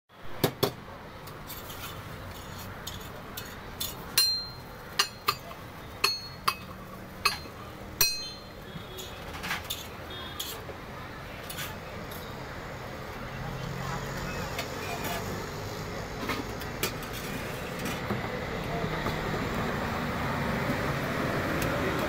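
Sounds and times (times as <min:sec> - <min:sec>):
metal utensils clinking on pots: 0:01.3 - 0:10.7.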